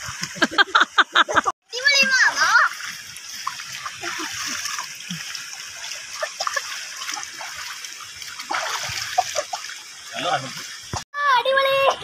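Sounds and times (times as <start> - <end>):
flowing water rushing: 1.7 - 12.0
child splashing in water: 1.8 - 9.9.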